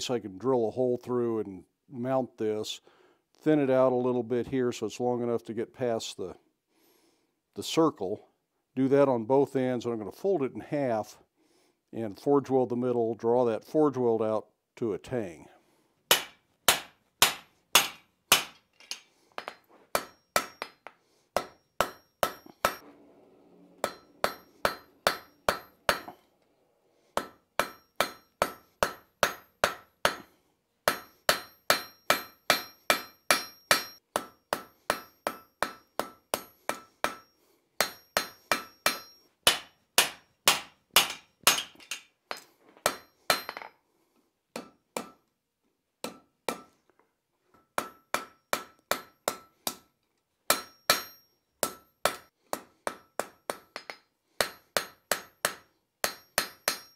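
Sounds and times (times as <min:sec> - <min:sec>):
hammer striking hot steel on anvil: 0:16.1 - 0:22.8, 0:23.8 - 0:26.2, 0:27.2 - 0:43.7, 0:44.6 - 0:45.2, 0:46.0 - 0:46.7, 0:47.6 - 0:49.9, 0:50.5 - 0:56.9
metallic ring of anvil: 0:23.8 - 0:26.2, 0:27.2 - 0:29.5, 0:30.9 - 0:39.3, 0:41.1 - 0:43.8, 0:50.5 - 0:52.3, 0:52.9 - 0:56.9.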